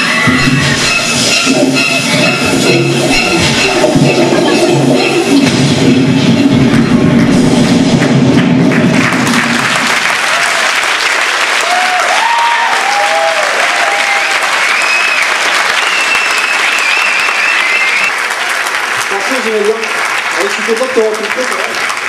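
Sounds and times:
music: 0.0s - 9.4s
audience applauding: 6.7s - 22.0s
whoops and whistles: 12.1s - 18.2s.

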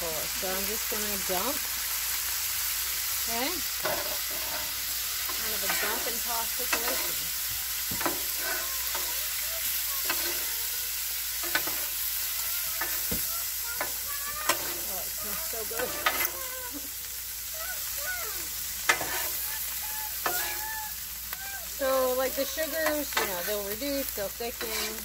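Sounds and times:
meat sizzling on a griddle: 0.0s - 25.0s
spatulas clacking on griddle: 3.6s - 16.8s, 18.8s - 25.0s
metal spatulas scraping griddle: 3.7s - 9.4s, 10.0s - 10.6s, 11.4s - 16.7s, 18.8s - 19.5s, 20.2s - 20.6s, 22.0s - 25.0s.

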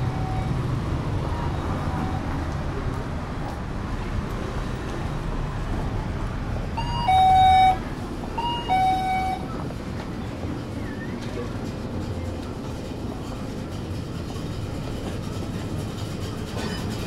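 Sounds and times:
street traffic noise: 0.0s - 17.0s
two-note door chime: 6.8s - 7.8s, 8.4s - 9.4s.

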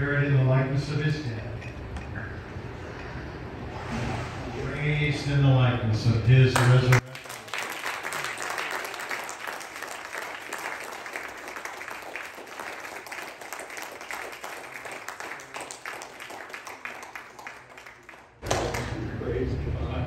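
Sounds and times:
congregation applauding: 6.6s - 19.0s.

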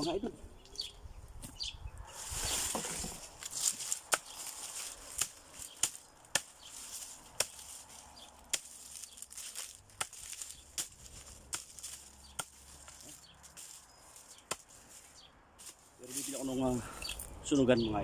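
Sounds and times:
dry leaves rustling: 2.1s - 17.3s
machete chopping on wood: 2.7s - 4.5s, 5.1s - 6.7s, 7.4s - 7.8s, 8.5s - 13.7s, 14.4s - 14.8s.

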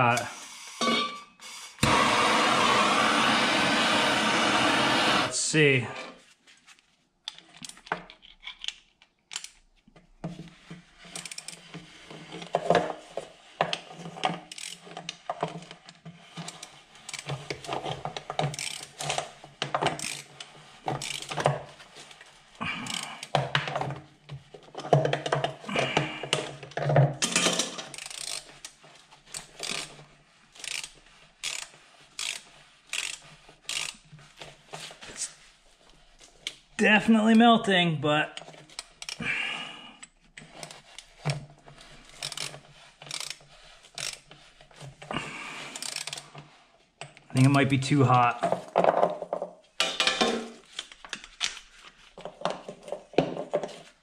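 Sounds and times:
ratchet wrench clicking: 11.1s - 11.6s, 14.5s - 14.8s, 16.5s - 17.3s, 18.5s - 18.9s, 20.0s - 20.3s, 21.0s - 21.3s, 22.8s - 23.3s, 27.9s - 28.5s, 29.3s - 29.9s, 30.6s - 34.0s, 38.8s - 39.2s, 42.2s - 43.4s, 44.0s - 44.2s, 45.8s - 46.2s.

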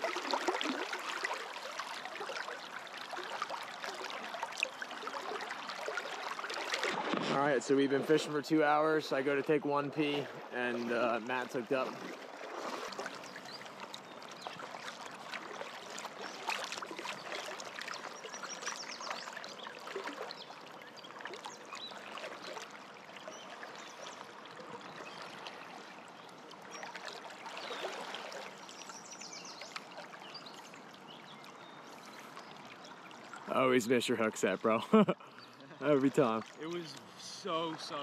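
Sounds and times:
river water rushing: 0.0s - 20.5s, 35.7s - 38.0s.

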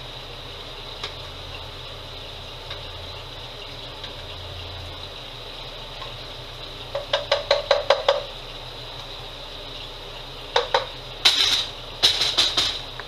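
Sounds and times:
steady hum: 0.0s - 13.0s
utensil tapping a pan: 6.9s - 8.3s, 10.5s - 12.9s
pan clattering: 10.6s - 13.0s.

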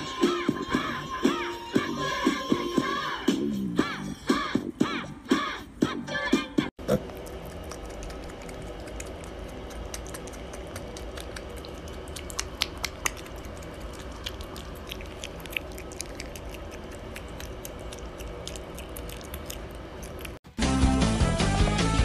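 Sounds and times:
piglet chewing and smacking: 6.8s - 20.5s
steady low hum: 6.8s - 20.5s.

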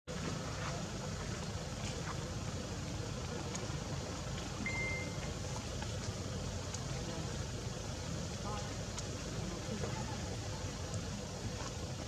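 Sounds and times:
low outdoor rumble: 0.1s - 12.0s
short high tone: 4.6s - 5.2s.

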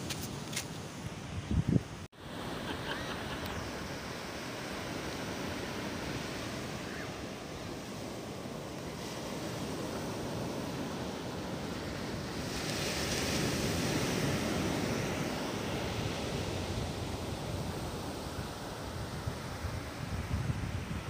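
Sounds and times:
wind on microphone: 0.0s - 2.1s, 8.8s - 21.0s
waves breaking on sandy beach: 2.1s - 21.0s.

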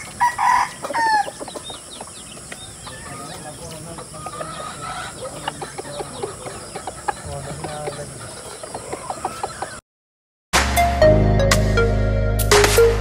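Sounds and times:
chickens clucking: 0.0s - 9.8s
outdoor background noise: 0.0s - 9.8s
loud electronic music: 10.6s - 13.0s.

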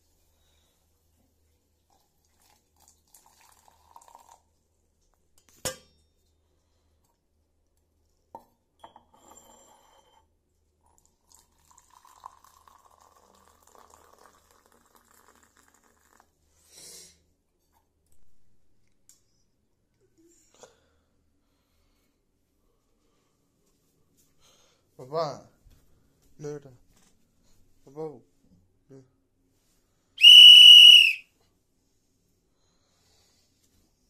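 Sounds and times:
water pouring from a bucket: 2.2s - 4.4s, 11.3s - 16.2s.

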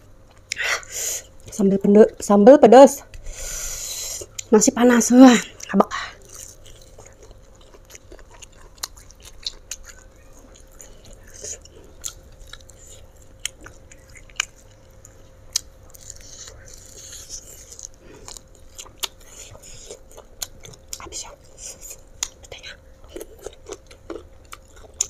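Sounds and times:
close-up chewing: 5.5s - 25.0s.

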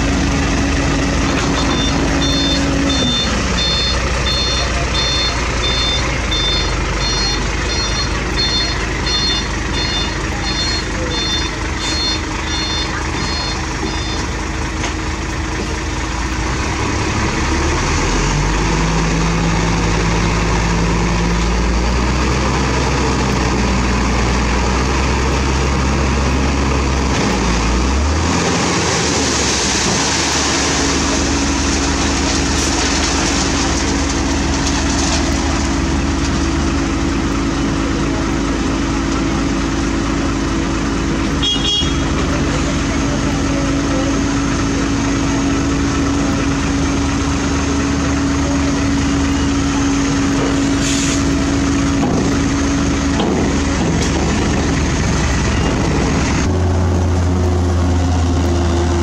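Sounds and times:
deep engine hum: 0.0s - 59.0s
diesel machinery running: 0.0s - 59.0s
reversing alarm beeping: 1.5s - 14.4s.

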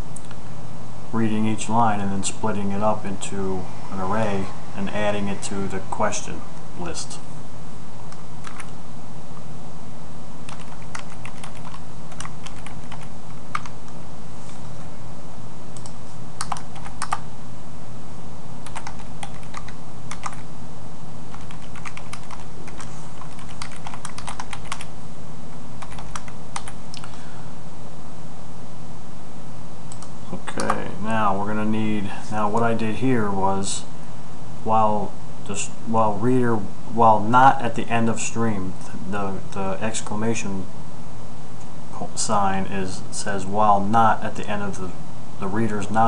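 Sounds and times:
steady low hum: 0.0s - 46.0s
computer keyboard typing: 8.1s - 8.8s, 10.5s - 14.0s, 15.8s - 17.2s, 18.6s - 20.4s, 21.3s - 24.9s, 25.8s - 27.1s.

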